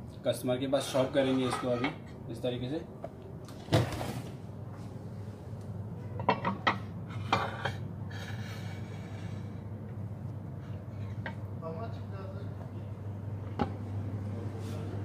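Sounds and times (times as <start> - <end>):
steady low hum: 0.0 - 15.0
dishes and cutlery clinking: 0.9 - 2.2, 6.0 - 7.8.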